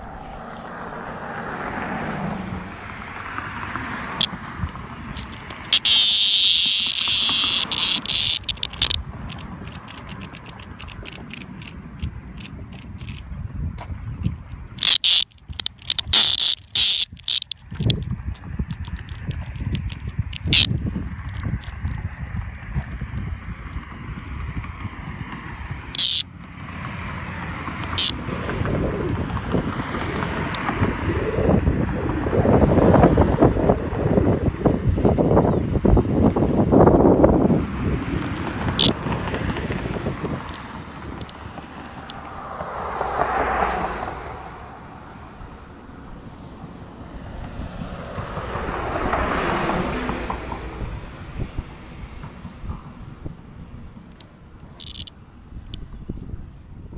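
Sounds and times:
clicks: 5.1 - 24.4, 25.8 - 26.3, 27.8 - 28.2, 37.0 - 42.2, 54.1 - 55.8
cicada buzzing distress squawks: 5.2 - 11.7, 14.4 - 18.1, 18.8 - 22.5, 25.7 - 27.2, 27.8 - 28.2, 37.6 - 42.3, 54.7 - 55.1
wind buffeting microphone: 8.6 - 14.8, 17.1 - 56.9.

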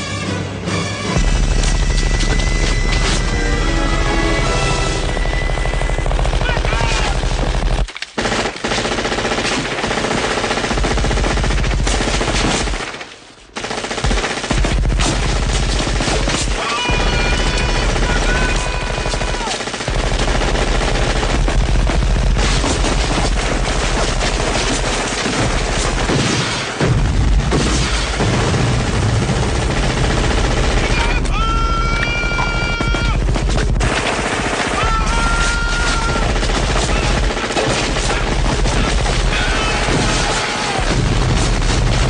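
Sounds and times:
heavy automatic gunfire: 4.8 - 13.0, 13.6 - 42.0
person yelling: 16.6 - 19.6, 30.8 - 33.2, 34.7 - 37.1.

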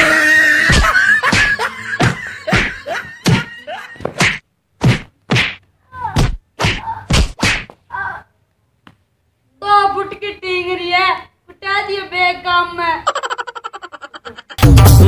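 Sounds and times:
person crying out: 0.0 - 3.9
blows landing on back: 0.6 - 7.8.

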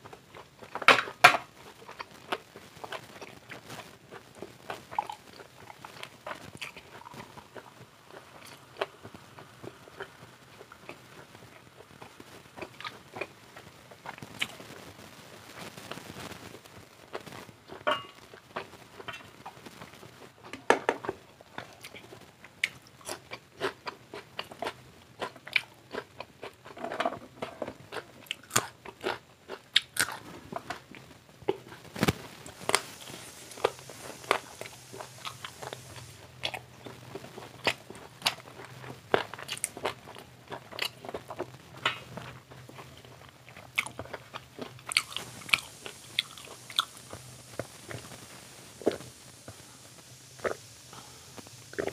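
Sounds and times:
crunchy bites and chewing: 20.5 - 48.2.

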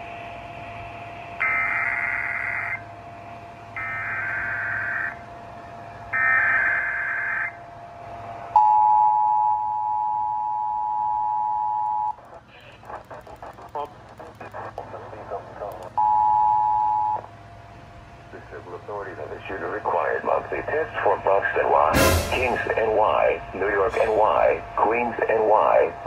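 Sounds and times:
data bursts over radio speaker: 12.1 - 17.2, 18.4 - 26.0.

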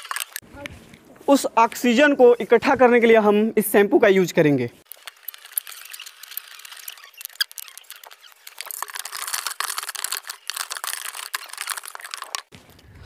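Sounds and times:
stick scraping inside plastic jug: 4.8 - 12.6.

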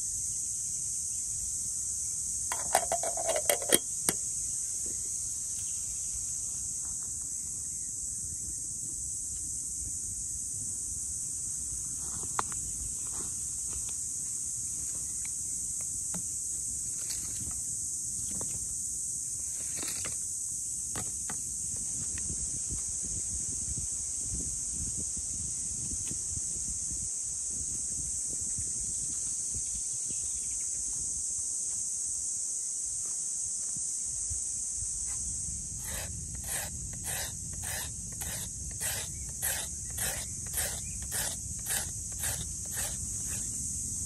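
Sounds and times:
insects chirping: 0.0 - 44.0
metal kettle lid clinking: 2.5 - 3.9.

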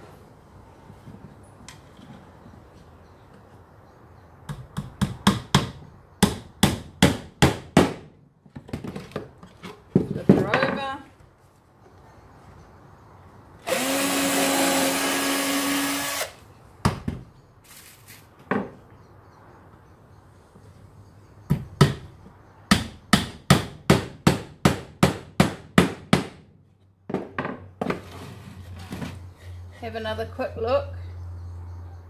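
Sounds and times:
hammer driving a nail: 4.5 - 8.1, 22.7 - 26.4
cordless drill boring into wood: 13.6 - 16.4.

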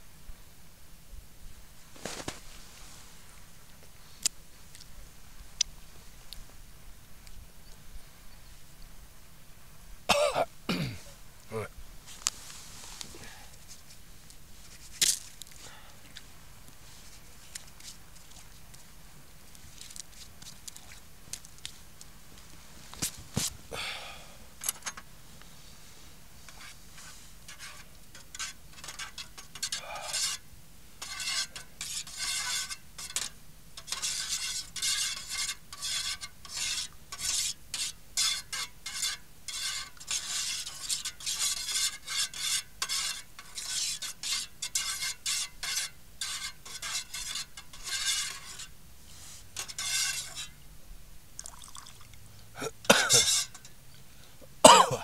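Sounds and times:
utensil stirring and scraping dish: 26.4 - 50.6, 52.9 - 53.8.

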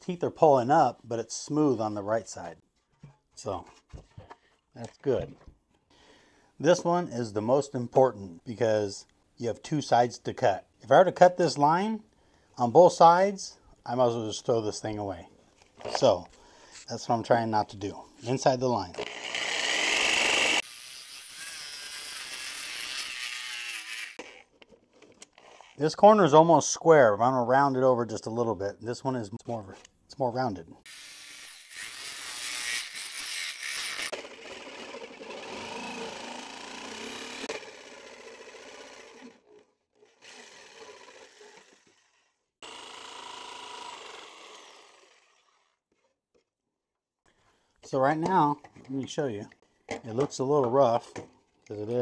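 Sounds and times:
jigsaw cutting wood: 19.0 - 24.4, 30.9 - 45.8.

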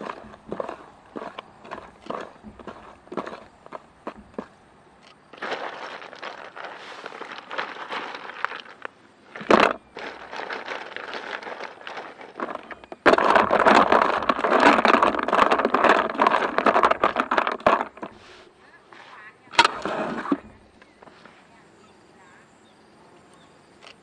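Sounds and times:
ice cubes clinking in metal pot: 5.4 - 18.2.

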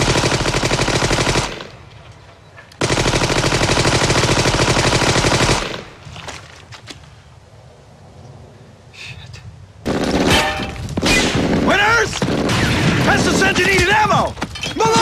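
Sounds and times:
automatic gunfire: 0.0 - 1.8, 2.8 - 6.0, 9.9 - 14.0.

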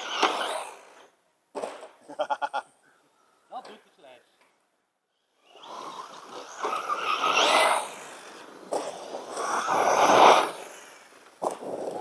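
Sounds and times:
rc car motor whining: 0.0 - 1.1, 5.2 - 12.0.

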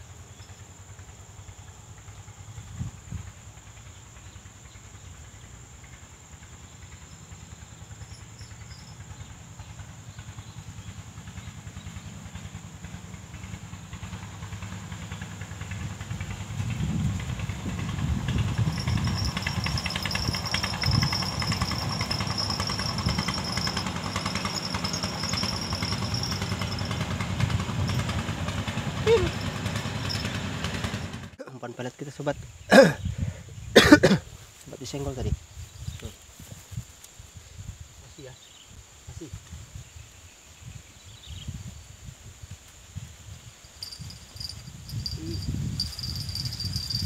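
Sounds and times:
boat engine putter: 13.4 - 31.4, 43.8 - 47.0.

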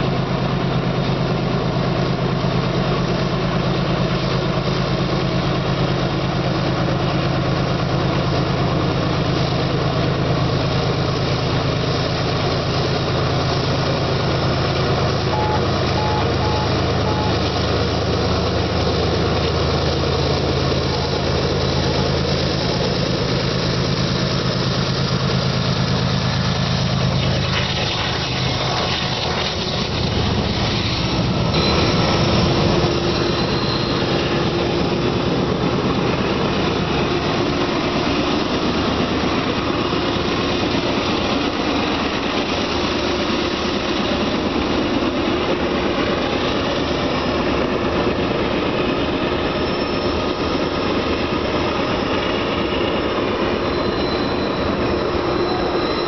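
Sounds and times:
heavy diesel locomotive drone: 0.0 - 56.0
rumble of freight cars: 0.0 - 56.0.

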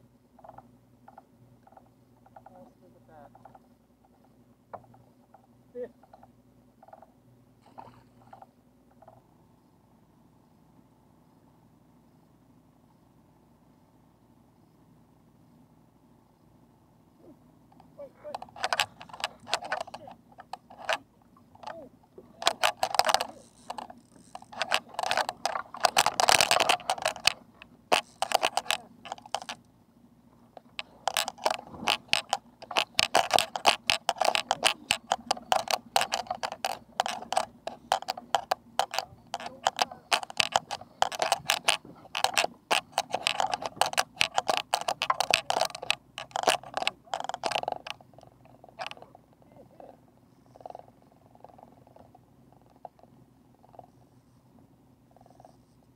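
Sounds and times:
fishing reel ratcheting clicks: 18.3 - 21.0, 22.4 - 29.6, 30.6 - 49.1.

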